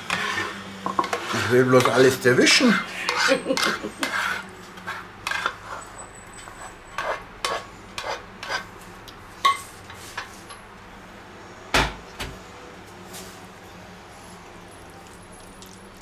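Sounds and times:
plastic spatula scraping a pan: 0.0 - 5.9, 6.5 - 8.7.

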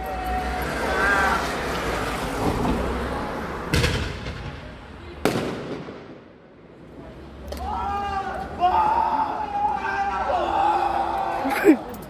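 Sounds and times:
fireworks bangs: 3.7 - 6.7.

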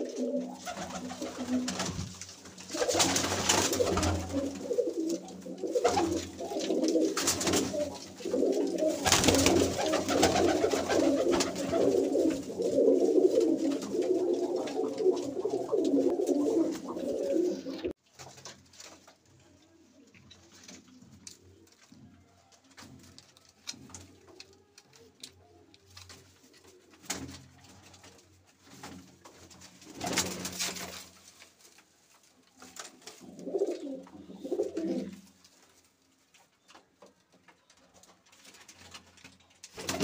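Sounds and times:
pigeons cooing: 0.0 - 18.0, 33.1 - 35.2.

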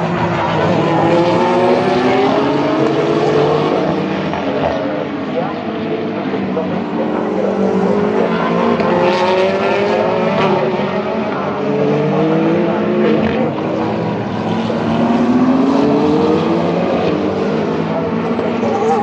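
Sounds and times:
race car engines accelerating: 0.0 - 19.0.

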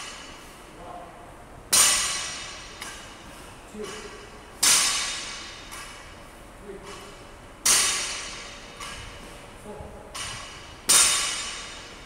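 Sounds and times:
barbell crashing on gym floor: 1.7 - 3.2, 3.8 - 6.1, 6.9 - 9.2, 10.1 - 12.0.

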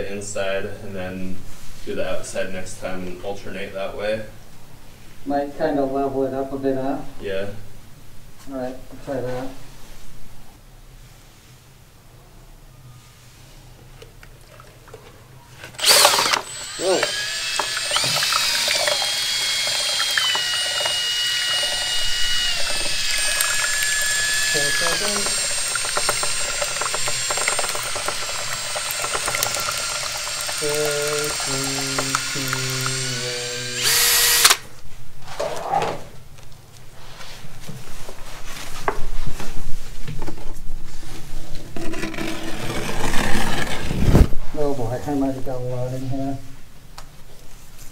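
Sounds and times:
drill motor whine: 15.8 - 34.6
paddle clicking against cup: 24.8 - 32.9
rustling and handling noise: 34.8 - 44.6, 47.1 - 47.9.

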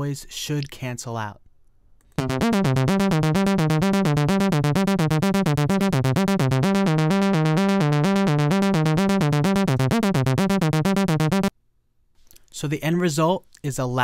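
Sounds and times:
electronic music loop: 2.2 - 11.5.

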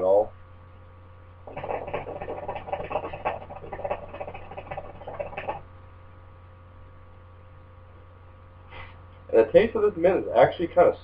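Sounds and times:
faint electrical hum: 0.0 - 11.0
hookah water bubbling: 1.4 - 5.7.

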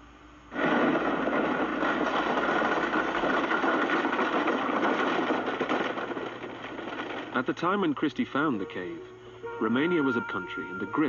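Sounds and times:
wooden cart rattling on dirt road: 0.5 - 8.0.

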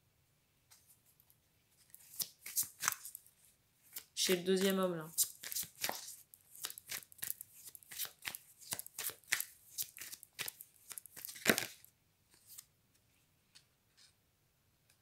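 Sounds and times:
cards being shuffled: 1.8 - 12.7.

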